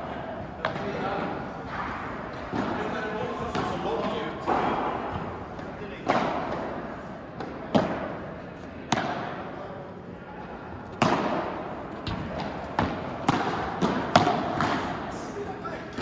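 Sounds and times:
ball struck by rackets: 0:08.9 - 0:09.4, 0:10.9 - 0:15.1
ball bouncing off court and walls: 0:10.9 - 0:15.0.

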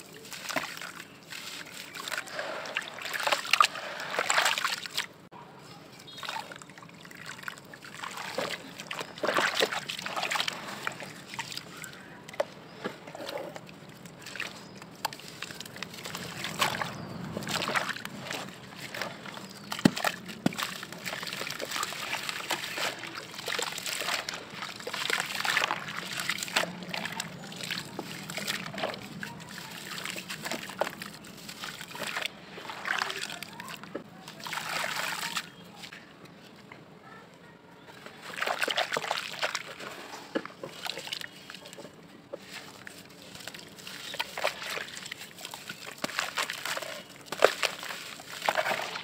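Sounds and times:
hands splashing water in a bucket: 0:00.0 - 0:05.2, 0:06.0 - 0:35.9, 0:38.2 - 0:49.0.

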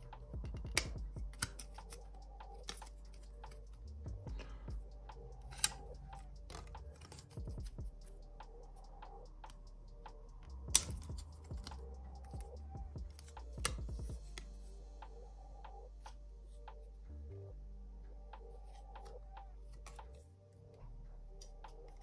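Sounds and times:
sharp plastic snaps: 0:10.7 - 0:12.5.

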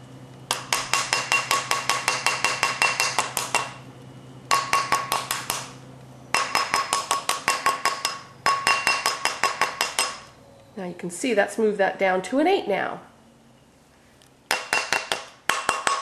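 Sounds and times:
mallet beating ring on steel mandrel: 0:00.5 - 0:03.8, 0:04.5 - 0:05.6, 0:06.3 - 0:10.3.

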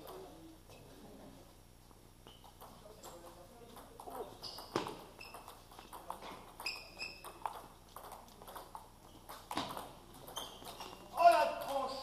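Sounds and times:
short high squeaks: 0:04.4 - 0:05.6, 0:06.6 - 0:07.4, 0:10.3 - 0:11.2.

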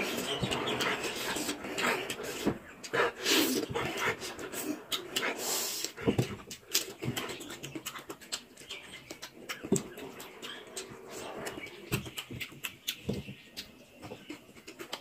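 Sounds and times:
wet chewing and lip-smacking: 0:00.0 - 0:15.0
quick breaths: 0:00.8 - 0:06.8.

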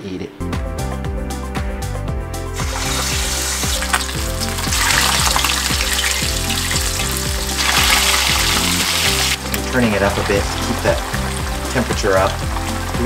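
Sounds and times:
background music: 0:00.0 - 0:13.0
fish sizzling in oil: 0:02.6 - 0:13.0.

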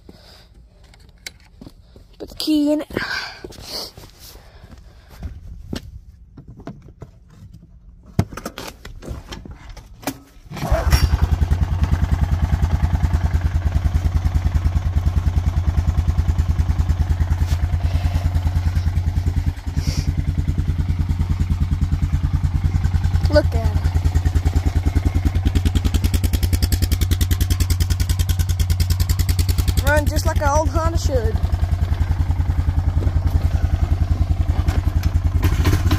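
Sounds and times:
car engine idling: 0:11.6 - 0:35.9
engine starter clicks and knocks: 0:34.5 - 0:35.9.

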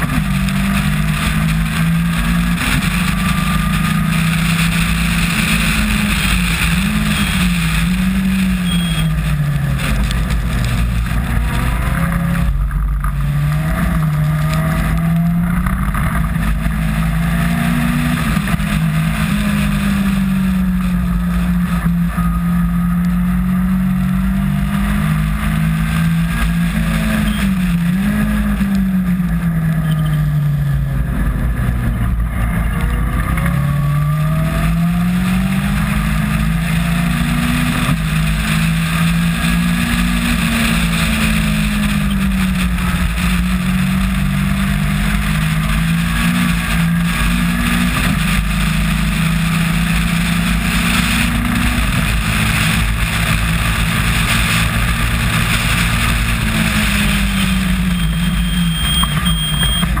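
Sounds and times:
wind rush and tyre spray: 0:00.0 - 0:21.8, 0:31.4 - 1:00.0
race car engine at speed: 0:00.0 - 1:00.0.

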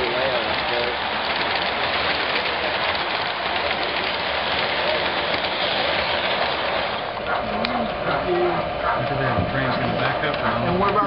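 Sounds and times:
model train wheels rolling: 0:00.0 - 0:11.0.

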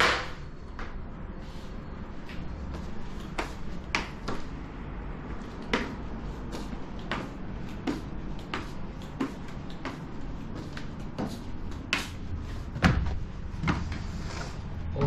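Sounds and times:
footsteps on wooden floor: 0:05.4 - 0:14.1.

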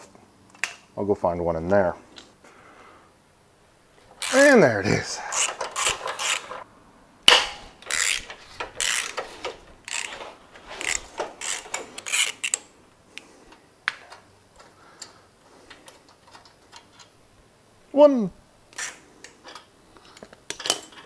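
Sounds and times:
ratchet wrench ratcheting: 0:05.3 - 0:06.6, 0:07.4 - 0:12.7.

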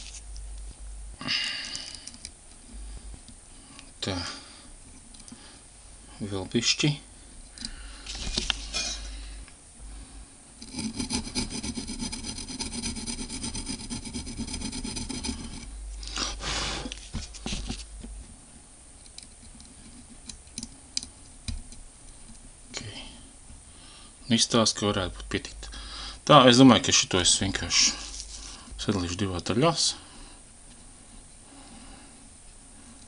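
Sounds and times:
hand tool rasping on metal: 0:10.6 - 0:15.7.

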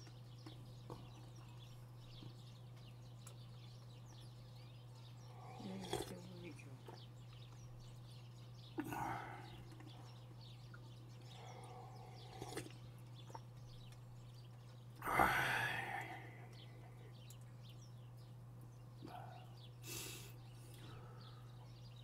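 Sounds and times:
steady low hum: 0:00.0 - 0:22.0
chewing and exhaling: 0:04.6 - 0:07.7, 0:08.6 - 0:17.5.

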